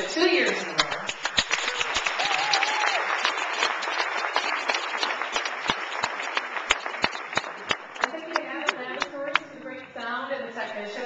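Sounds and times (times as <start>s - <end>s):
audience applauding: 0.8s - 9.4s.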